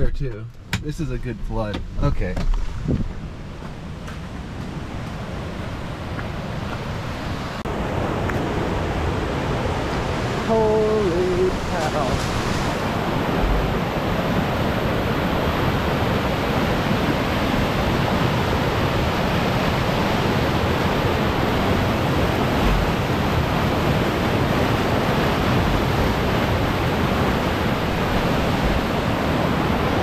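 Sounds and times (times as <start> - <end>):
low bumps: 0.0 - 5.2, 11.8 - 14.8, 22.2 - 23.4
rushing flood water: 4.4 - 30.0.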